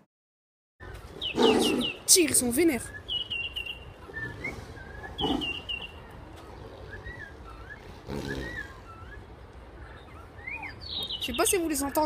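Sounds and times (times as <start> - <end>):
small birds chirping: 0.8 - 12.0
tiger growling: 4.1 - 5.7.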